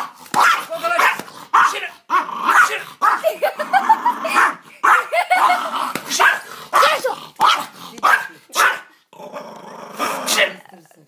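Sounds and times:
small dog barking and yipping: 0.0 - 3.4, 4.3 - 8.9.

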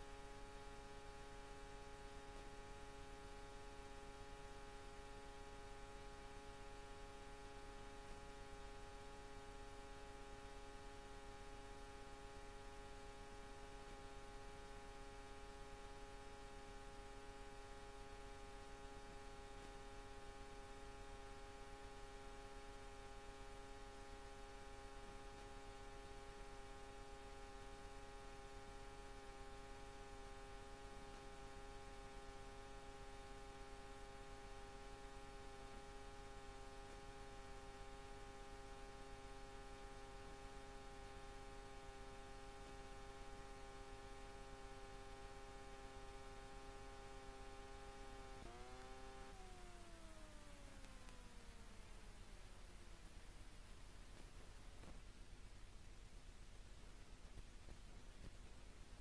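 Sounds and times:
faint electrical hum with hiss: 0.0 - 59.0.

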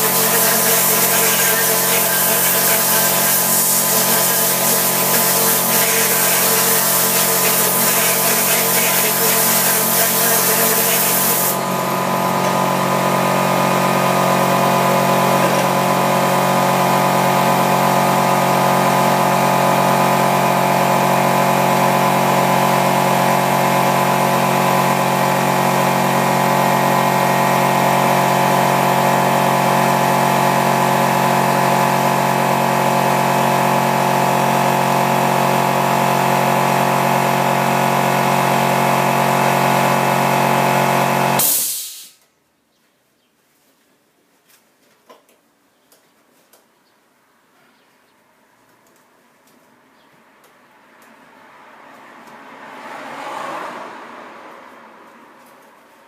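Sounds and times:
air compressor humming: 0.0 - 42.2.

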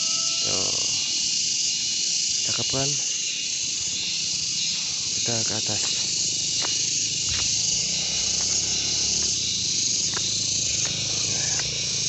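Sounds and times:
insects chirring: 0.0 - 12.0
footsteps on dirt path: 4.7 - 11.8.

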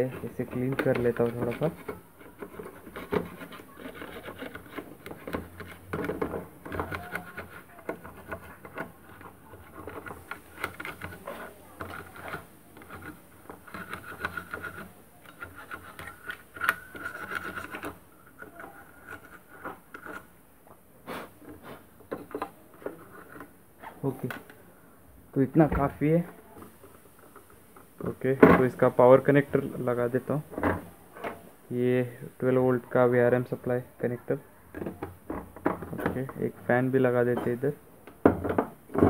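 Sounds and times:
plastic brush scrubbing circuit board: 0.0 - 20.3.

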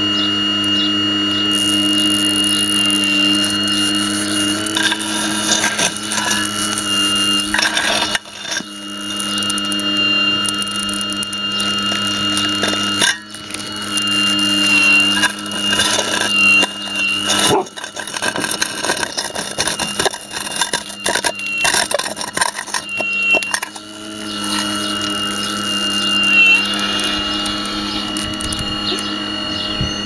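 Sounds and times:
model excavator motors whining: 0.0 - 30.0
bucket scraping on gravel: 1.5 - 27.1.

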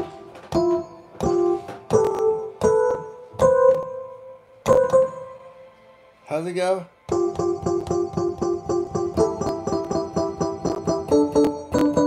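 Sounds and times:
digital piano chords: 0.0 - 12.0.

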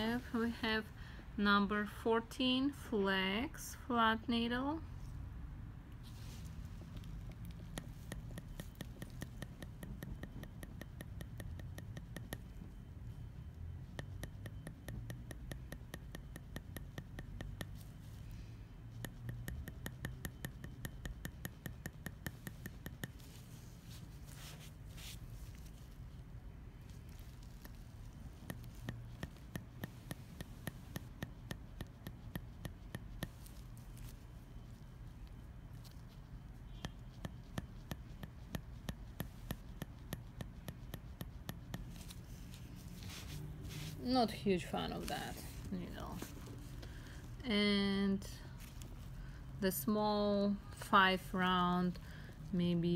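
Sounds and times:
needle tool tapping clicks: 7.3 - 12.7, 14.0 - 17.9, 19.0 - 23.4, 27.4 - 34.1.

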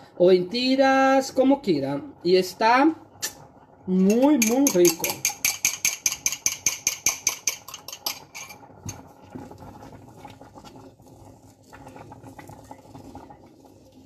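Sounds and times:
wooden spoon tapping steel pot: 4.0 - 8.3
rapid clicking of kitchen utensil: 4.1 - 8.6.

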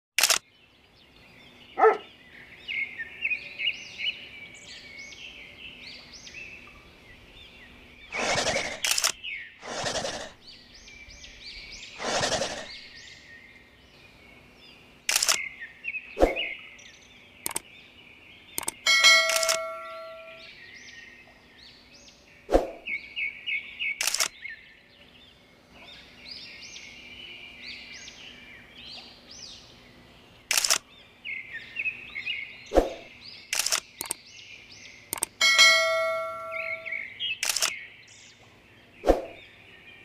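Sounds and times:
sharp clicks: 0.2 - 0.4, 8.2 - 10.3, 15.0 - 15.4, 17.4 - 17.7, 18.6 - 19.8, 24.0 - 24.3, 30.5 - 30.8, 32.9 - 34.2, 35.1 - 35.4, 37.4 - 37.8
small birds chirping: 0.2 - 40.0.

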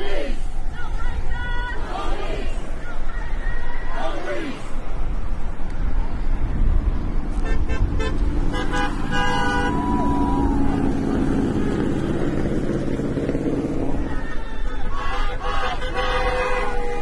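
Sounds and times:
low rumble of road traffic: 0.0 - 17.0
car horns honking: 7.4 - 10.5, 15.0 - 17.0.

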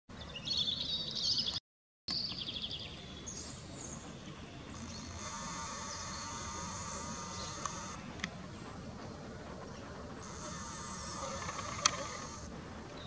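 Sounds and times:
birds chirping and trilling: 0.2 - 13.0
camera zoom motor whine: 4.7 - 8.2, 10.2 - 12.5.

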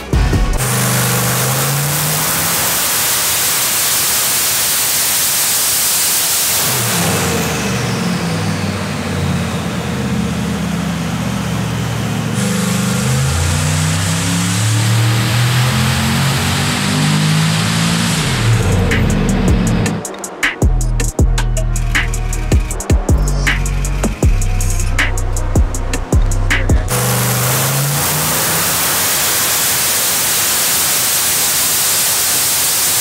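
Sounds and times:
engine running hard under load: 6.4 - 31.8.

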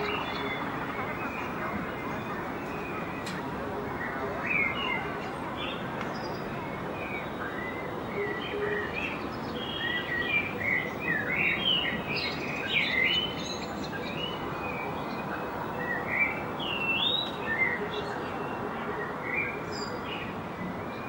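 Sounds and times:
gulls calling: 0.0 - 5.8
steady rushing background noise: 0.0 - 8.2.

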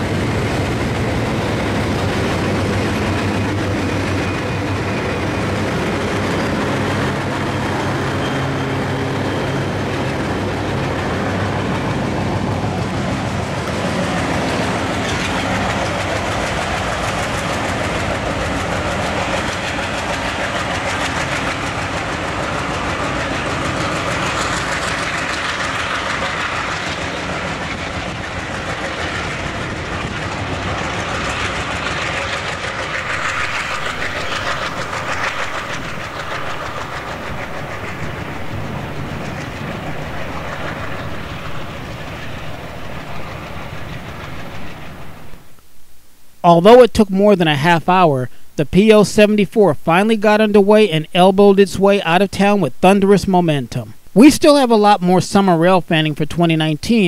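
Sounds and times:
wheels clattering over rail joints: 0.0 - 45.4
locomotive engine drone: 0.0 - 56.9.

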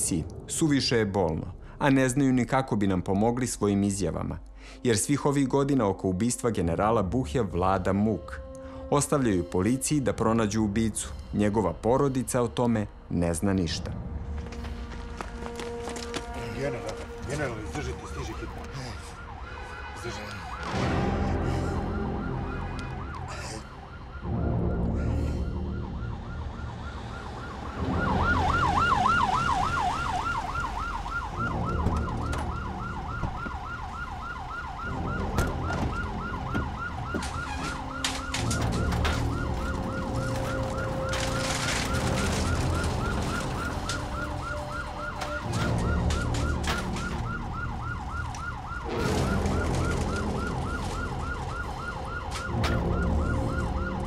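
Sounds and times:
ambulance siren warbling: 15.9 - 54.0.

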